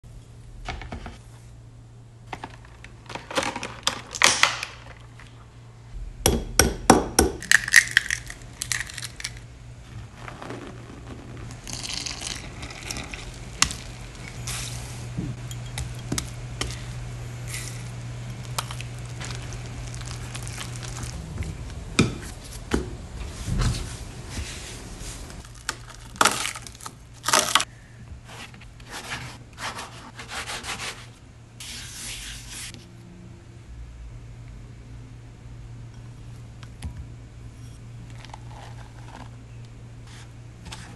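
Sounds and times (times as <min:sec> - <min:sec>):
low steady hum: 0:00.0 - 0:40.9
glass bowls clinking: 0:15.4 - 0:16.2.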